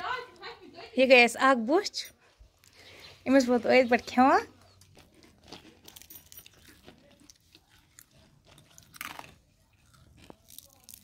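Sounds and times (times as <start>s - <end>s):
crunching of fried food eaten: 4.4s - 11.0s.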